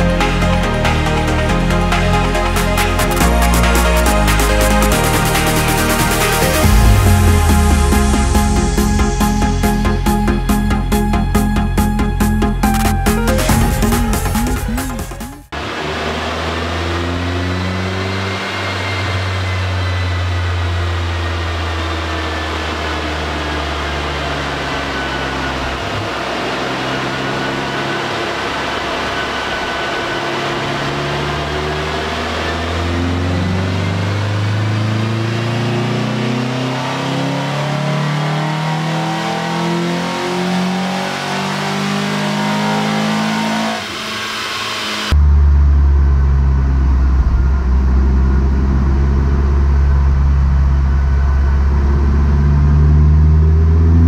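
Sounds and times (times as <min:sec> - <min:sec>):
car engine revving on dynamometer: 0:15.5 - 0:54.0.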